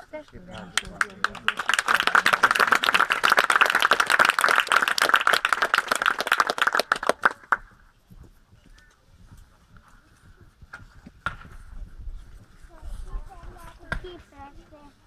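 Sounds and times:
audience applause: 0:00.6 - 0:07.6.

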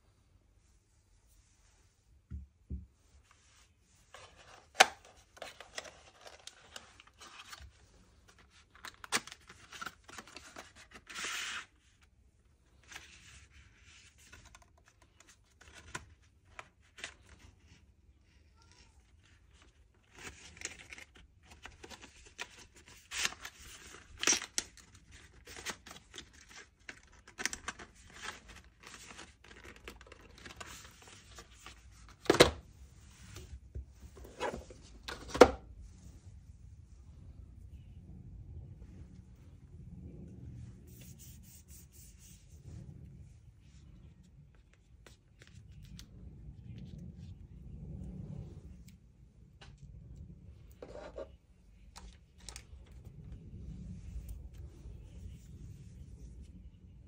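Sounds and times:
packaging rustling and tearing: 0:04.2 - 0:11.7, 0:20.0 - 0:32.3.

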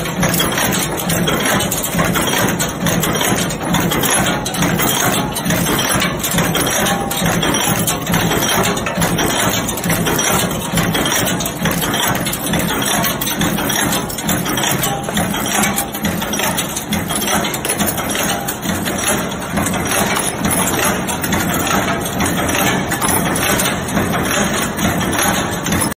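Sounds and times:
continuous machine din: 0:00.0 - 0:25.9
fast clatter of metal strikes: 0:00.0 - 0:25.9.

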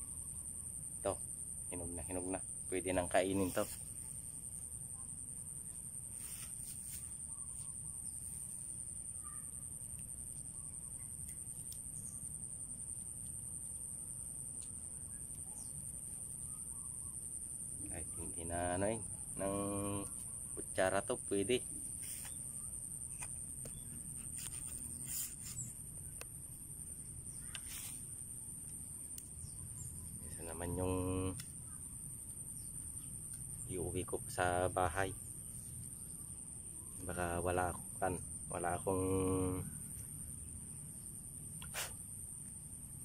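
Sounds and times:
high-pitched insect drone: 0:00.0 - 0:13.9, 0:14.7 - 0:43.0
faint bird calls: 0:09.1 - 0:09.6, 0:27.3 - 0:28.0.

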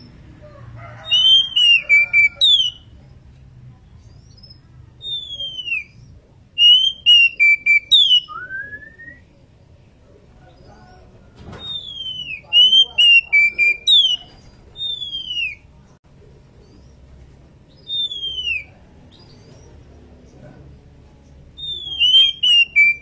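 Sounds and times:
bird whistling calls: 0:01.0 - 0:02.9, 0:05.0 - 0:09.3, 0:11.6 - 0:15.6, 0:17.8 - 0:18.7, 0:21.6 - 0:23.0.

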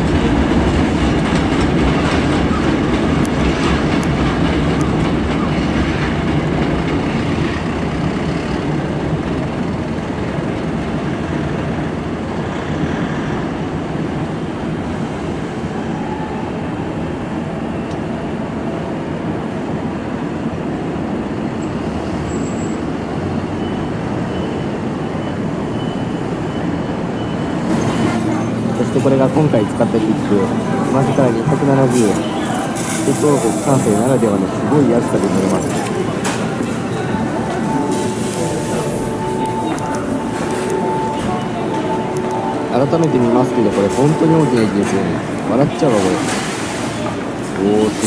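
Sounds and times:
train wheels rumbling on rails: 0:00.0 - 0:48.0.

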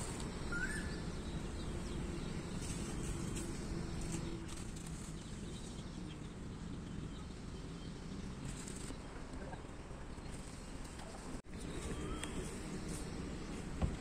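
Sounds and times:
rising bird chirp: 0:00.0 - 0:03.4
faint bird calls: 0:00.5 - 0:01.1, 0:11.6 - 0:13.0.

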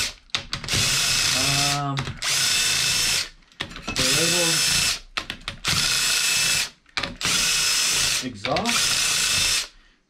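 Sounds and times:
cordless drill spinning bolts: 0:00.6 - 0:03.3, 0:04.0 - 0:05.0, 0:05.6 - 0:09.7.

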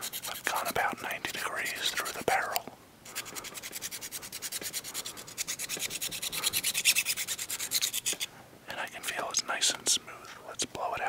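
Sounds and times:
needle file rasping plastic: 0:00.0 - 0:02.2, 0:03.1 - 0:08.3.

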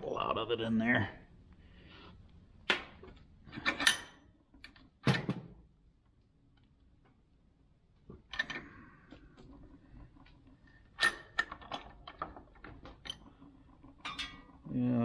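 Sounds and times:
metal vise clanks and scrapes: 0:03.5 - 0:04.3, 0:11.0 - 0:14.6.

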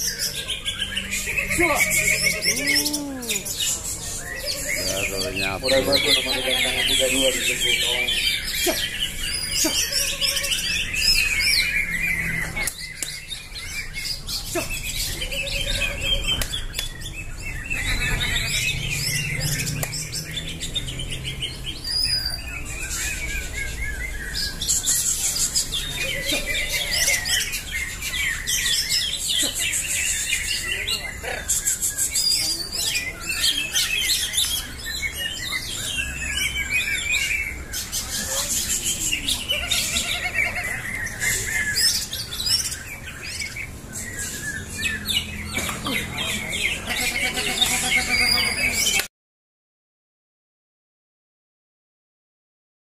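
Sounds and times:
chorus of birds singing: 0:00.0 - 0:49.1.

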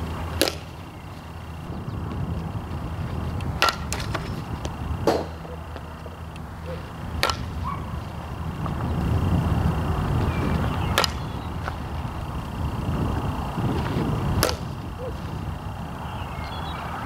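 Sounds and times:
steady low rumble: 0:00.0 - 0:17.0
softball bat striking ball: 0:00.2 - 0:00.9, 0:03.3 - 0:08.0, 0:10.9 - 0:12.0, 0:14.4 - 0:14.9
sharp knocks: 0:00.4 - 0:00.7, 0:03.6 - 0:04.4, 0:05.0 - 0:05.9, 0:07.2 - 0:07.6.

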